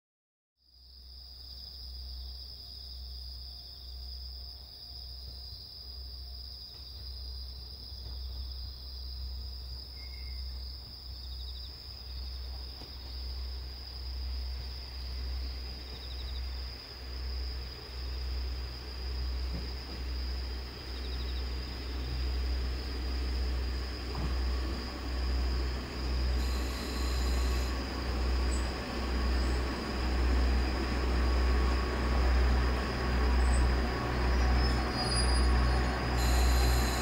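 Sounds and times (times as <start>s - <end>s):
insects trilling: 1.3s - 37.0s
low rumble: 12.1s - 37.0s.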